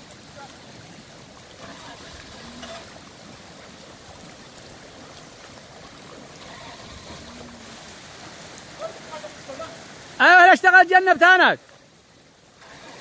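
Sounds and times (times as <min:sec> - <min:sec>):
flood water rushing: 0:00.0 - 0:13.0.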